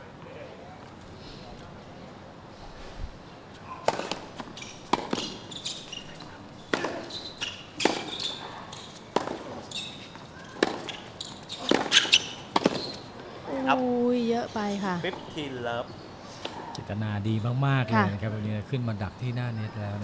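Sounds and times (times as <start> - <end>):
racket striking tennis ball: 3.8 - 6.0, 6.7 - 9.7, 10.6 - 13.0
ball bouncing: 3.9 - 5.4, 9.1 - 9.6, 10.6 - 11.0, 11.6 - 13.0.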